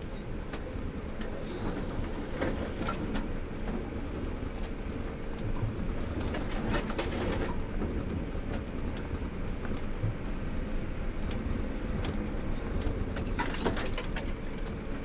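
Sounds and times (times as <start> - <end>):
car engine and tyres rumbling: 0.0 - 15.0
knocks and rattles in car cabin: 0.4 - 15.0.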